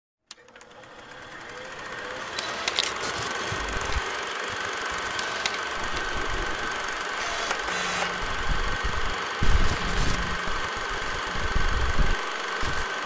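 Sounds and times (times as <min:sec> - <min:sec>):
steady mechanical buzz: 0:00.3 - 0:13.0
sharp clicks: 0:02.3 - 0:10.6.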